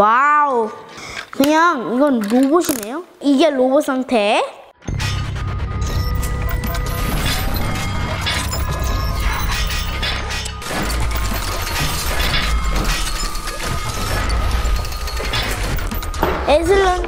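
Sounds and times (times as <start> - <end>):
background music: 4.8 - 17.0
mechanical clicking and crashing effects: 4.9 - 16.9.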